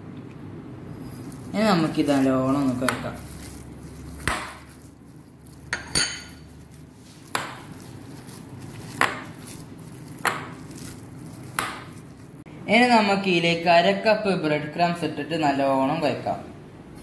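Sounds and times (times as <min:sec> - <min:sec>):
hands mixing food in bowl: 0:01.1 - 0:12.5
hand clinking against glass bowl: 0:05.7 - 0:06.5.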